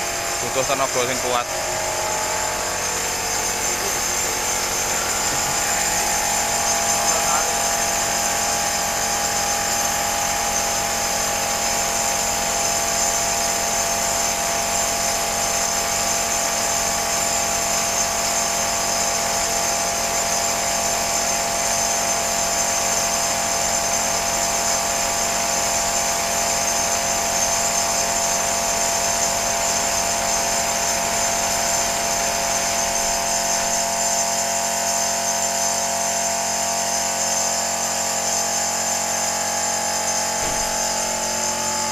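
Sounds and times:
air compressor whining: 0.0s - 41.9s
spray gun hissing: 40.3s - 41.4s.

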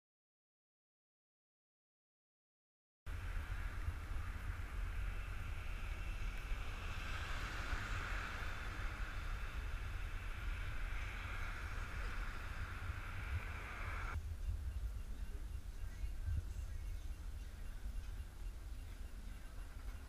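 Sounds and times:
outdoor background hiss: 3.1s - 20.0s
wind buffeting microphone: 3.1s - 20.0s.

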